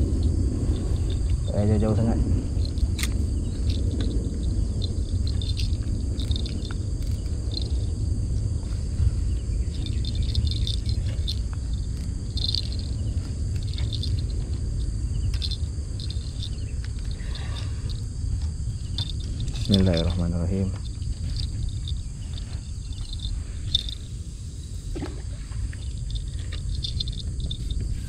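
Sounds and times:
insects chirping: 0:00.0 - 0:28.0
low rumble: 0:00.0 - 0:28.0.

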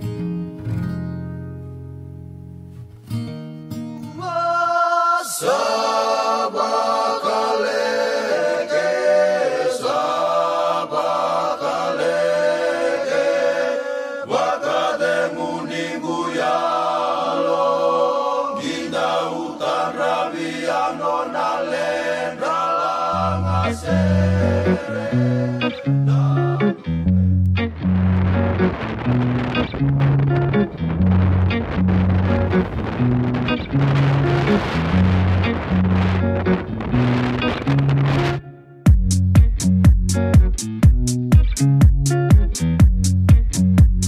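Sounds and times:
music with chant-like singing: 0:04.2 - 0:27.0.

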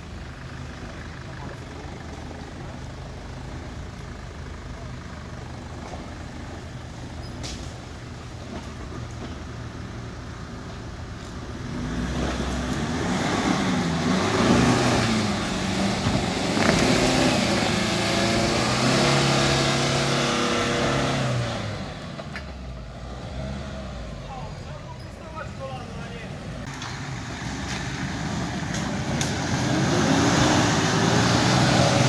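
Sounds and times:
off-road vehicle engine revving: 0:11.4 - 0:24.9, 0:26.3 - 0:32.0.

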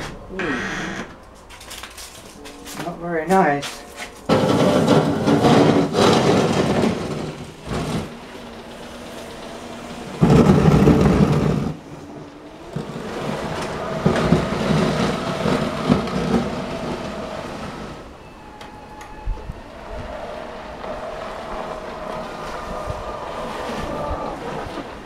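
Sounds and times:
blade pushing snow: 0:03.7 - 0:18.1, 0:20.4 - 0:25.0.

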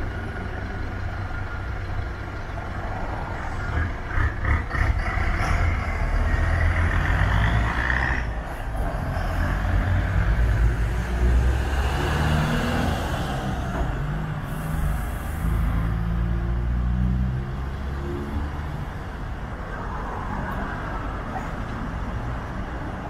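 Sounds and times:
bus diesel engine humming: 0:00.0 - 0:23.0
air brake hiss: 0:14.4 - 0:15.6.

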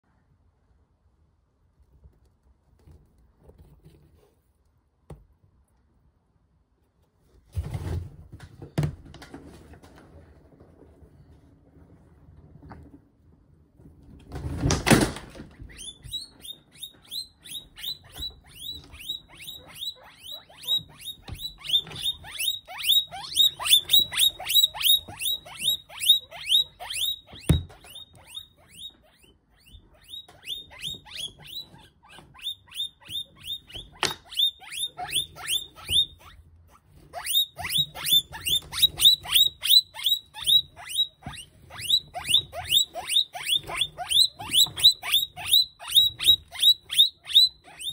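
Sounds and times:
rustling thump: 0:07.4 - 0:11.0
guinea pig squealing: 0:14.6 - 0:47.9.

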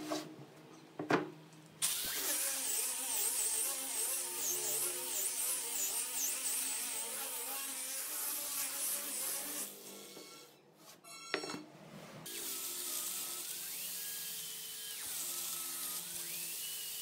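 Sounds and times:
angle grinder sanding wood: 0:01.9 - 0:10.3.

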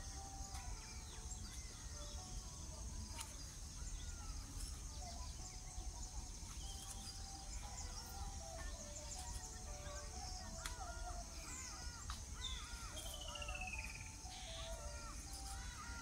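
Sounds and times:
birds chirping and whistling: 0:00.0 - 0:16.0
insect drone: 0:00.0 - 0:16.0.

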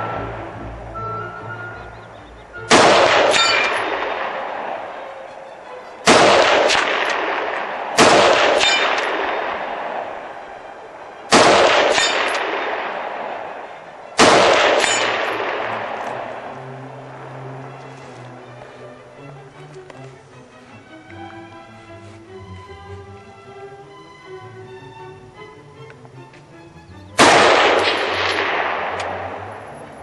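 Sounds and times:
steel target ringing: 0:02.7 - 0:04.6, 0:08.0 - 0:09.8, 0:11.3 - 0:13.1, 0:14.2 - 0:16.0
rifle shots echoing: 0:02.7 - 0:05.3, 0:06.0 - 0:17.3, 0:27.2 - 0:29.5.

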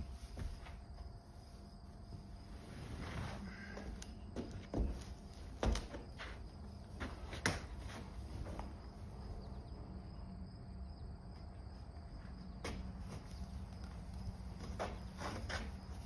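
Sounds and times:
hay bales knocking and rustling: 0:00.0 - 0:09.0, 0:12.6 - 0:16.0
steady low hum: 0:00.0 - 0:16.0.

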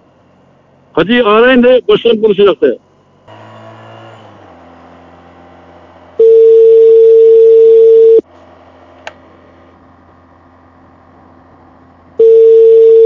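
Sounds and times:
phone ringback beep: 0:06.2 - 0:08.2, 0:12.2 - 0:13.0.

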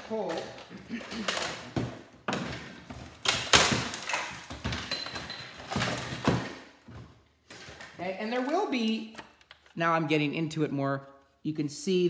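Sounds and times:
plastic casing cracking apart: 0:03.1 - 0:06.6.

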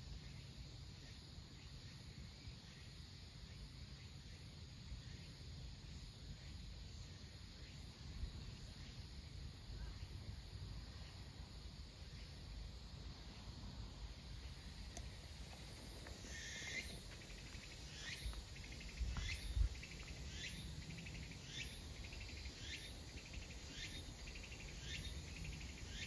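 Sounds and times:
insect calling with buzzy trill: 0:00.0 - 0:26.0.

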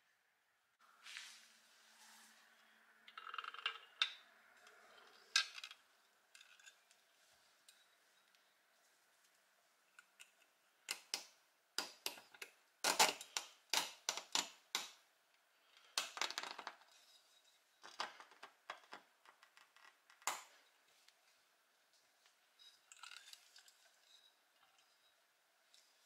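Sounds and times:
small metal parts clicking and scraping: 0:03.1 - 0:08.4, 0:22.6 - 0:26.0.

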